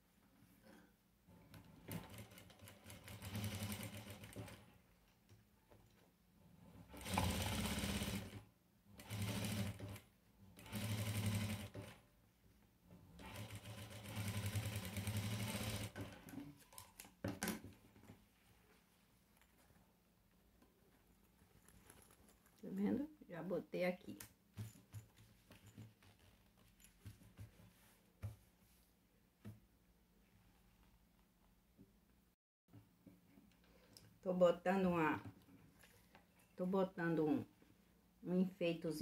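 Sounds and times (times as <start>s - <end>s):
sewing machine stitching: 1.5s - 4.7s, 6.7s - 12.0s, 13.0s - 16.6s.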